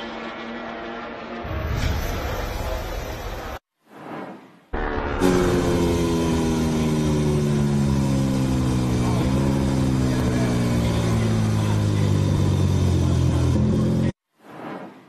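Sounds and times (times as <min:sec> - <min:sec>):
motorcycle engine at speed: 0:04.8 - 0:14.2.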